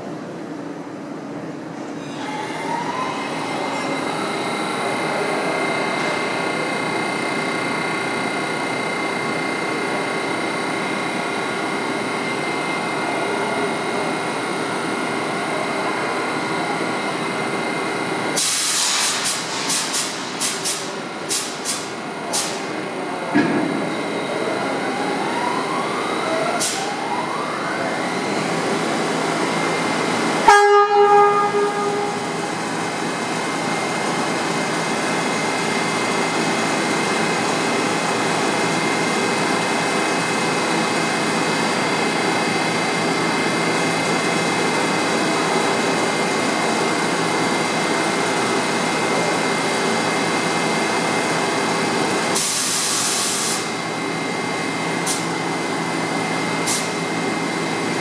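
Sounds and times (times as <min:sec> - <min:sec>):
subway train equipment humming: 0:00.0 - 0:58.0
air hiss burst: 0:18.4 - 0:22.6
train horn blast: 0:30.4 - 0:32.4.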